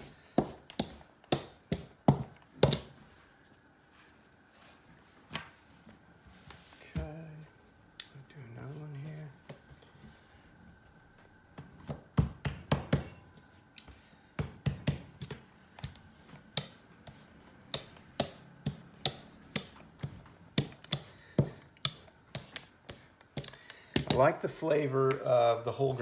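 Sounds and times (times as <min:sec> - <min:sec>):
rolling pin knocking on marble: 0:00.4 - 0:03.0, 0:14.4 - 0:19.8, 0:20.6 - 0:24.3.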